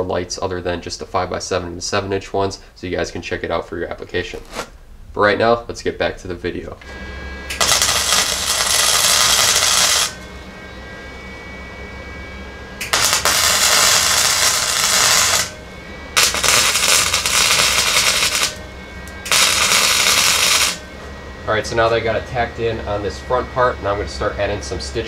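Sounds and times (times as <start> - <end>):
low welder hum: 0.0 - 25.0
welding arc crackle: 4.3 - 4.7, 6.9 - 10.4, 12.8 - 20.9.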